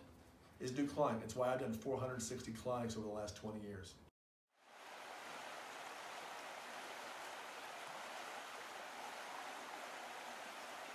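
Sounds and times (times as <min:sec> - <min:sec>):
rushing water hiss: 0:04.6 - 0:10.9.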